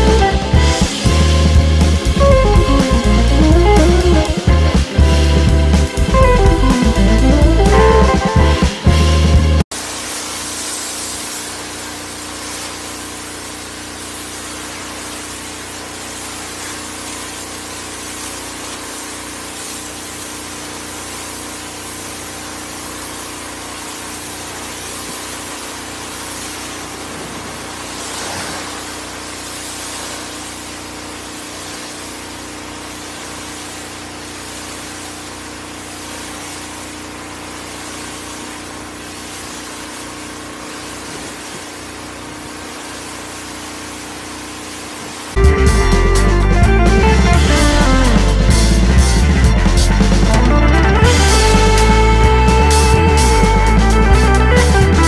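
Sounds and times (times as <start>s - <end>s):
water jet hissing on wood: 0.0s - 7.7s, 9.2s - 45.4s
pressure washer hum: 0.0s - 55.0s.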